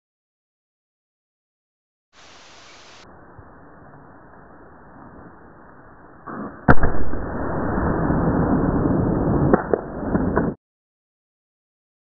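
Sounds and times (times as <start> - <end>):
shotgun blast: 6.6 - 8.4.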